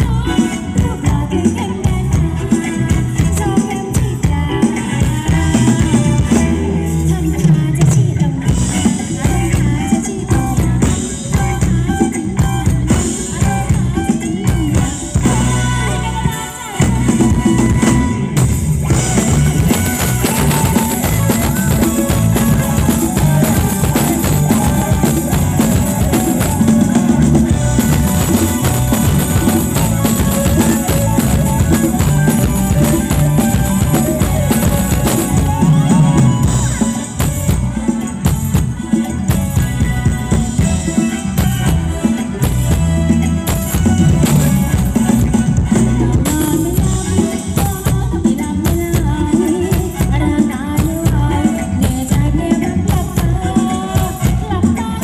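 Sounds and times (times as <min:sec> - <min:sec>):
dance music from live band: 0:00.0 - 0:55.0
bass drum and snare: 0:16.8 - 0:55.0.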